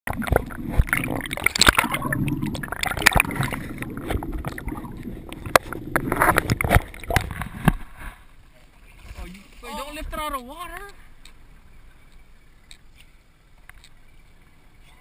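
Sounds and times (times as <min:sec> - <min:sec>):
underwater sloshing and gurgling: 0:00.1 - 0:09.9.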